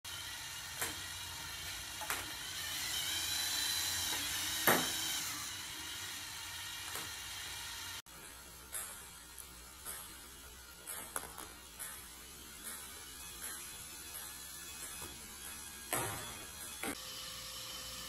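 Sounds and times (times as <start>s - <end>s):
motors whirring: 0.1s - 18.0s
ping pong balls popping out: 8.7s - 17.0s.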